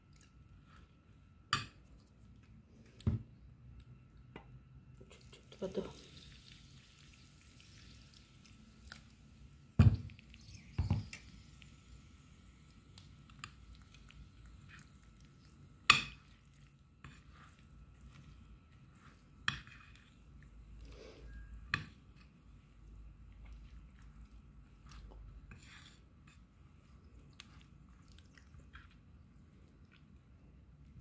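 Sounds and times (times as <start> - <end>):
spoon stirring thick paste: 13.2 - 30.0.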